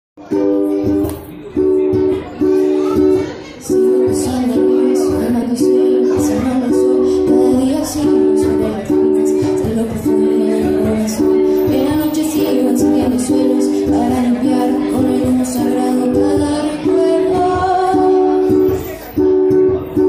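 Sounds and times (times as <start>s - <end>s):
ukulele strumming: 0.2s - 20.0s.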